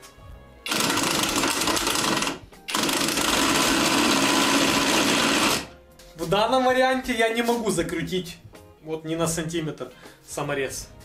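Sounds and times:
impact wrench hammering: 0.7s - 5.7s.

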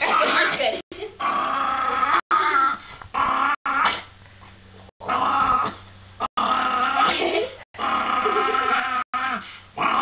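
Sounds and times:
small dog growl-howling: 1.2s - 4.0s, 5.0s - 5.8s, 6.4s - 7.2s, 7.8s - 10.0s.

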